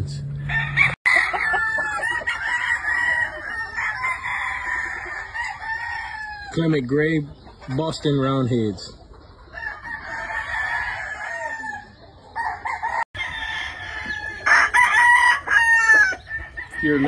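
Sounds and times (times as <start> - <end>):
roosters crowing: 0.2 - 6.9, 9.2 - 17.0.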